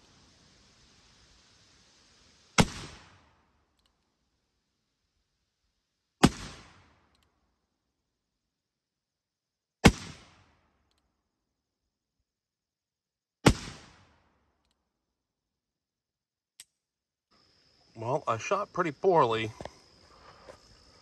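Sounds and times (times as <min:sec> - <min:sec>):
revolver gunshots: 0:02.6 - 0:03.2, 0:06.2 - 0:07.0, 0:09.8 - 0:10.5, 0:13.4 - 0:14.3.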